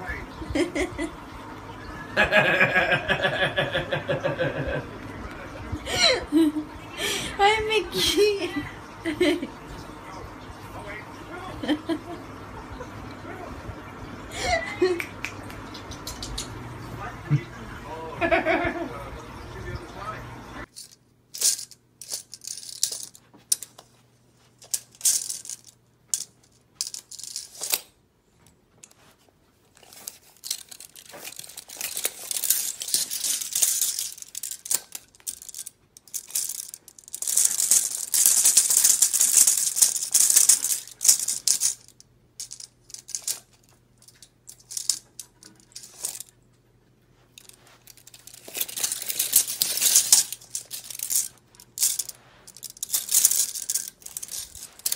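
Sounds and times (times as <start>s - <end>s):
metal tape measure rattling: 15.7s - 16.5s, 20.6s - 23.9s, 24.5s - 27.9s, 29.8s - 46.4s, 47.3s - 54.9s.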